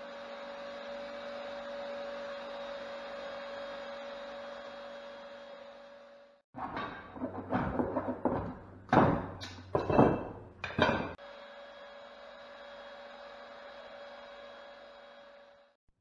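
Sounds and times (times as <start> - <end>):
heavy knocks: 6.6 - 11.2.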